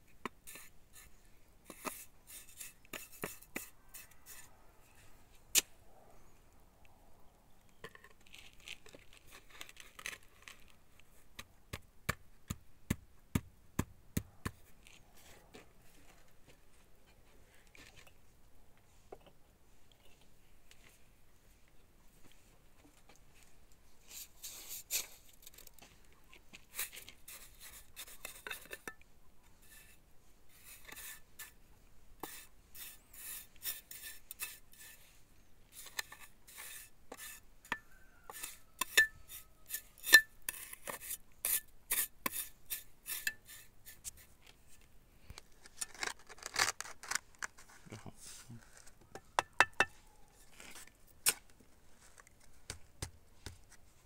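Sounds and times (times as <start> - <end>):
trowel scraping and clinking: 1.7 - 4.5, 26.8 - 29.0, 32.2 - 35.0, 35.7 - 44.2.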